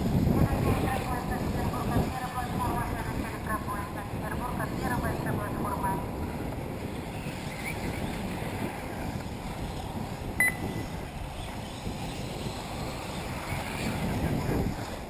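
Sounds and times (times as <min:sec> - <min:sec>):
wind rumbling on microphone: 0:00.0 - 0:15.0
short high beep: 0:10.4 - 0:10.8.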